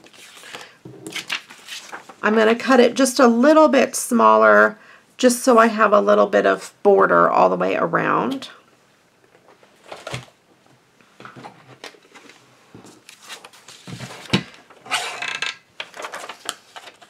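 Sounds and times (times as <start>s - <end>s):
paper sheet rustling: 0.0s - 2.6s, 11.8s - 14.8s, 15.8s - 17.0s.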